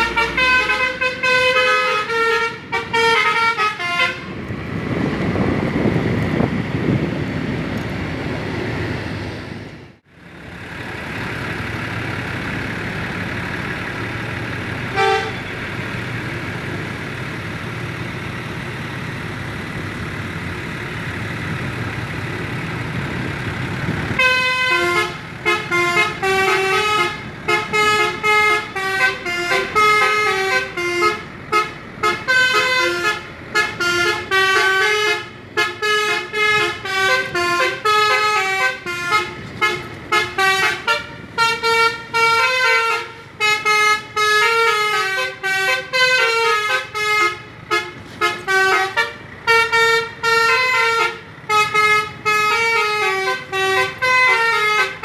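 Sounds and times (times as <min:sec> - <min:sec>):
multi-tone bus horn melody: 0:00.0 - 0:04.5, 0:14.8 - 0:15.8, 0:24.1 - 0:55.0.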